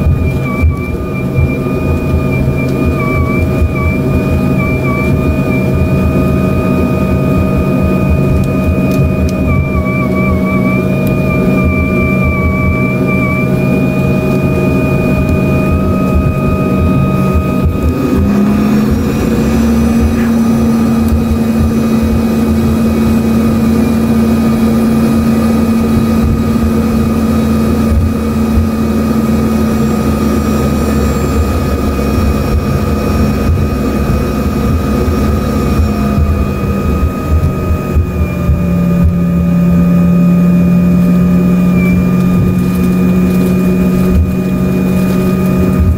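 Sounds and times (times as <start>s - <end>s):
jet engine whine in cabin: 0.0s - 45.9s
strong steady engine hum: 0.0s - 45.9s.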